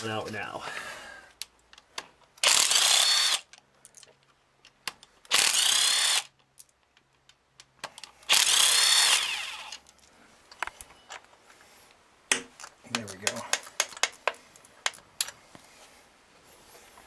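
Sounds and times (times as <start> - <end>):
power tool motor whining: 2.4 - 3.4, 5.3 - 6.3, 8.3 - 9.8.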